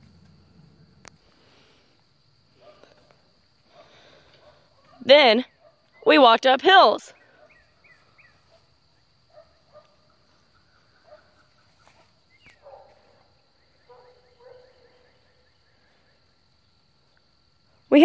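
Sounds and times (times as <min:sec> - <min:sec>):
bird chirps: 0:07.1 - 0:09.1, 0:10.0 - 0:12.7.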